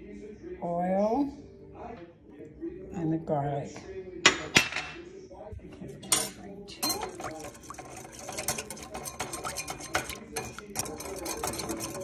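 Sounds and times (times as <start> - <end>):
whisk clicking against bowl: 6.8 - 12.0.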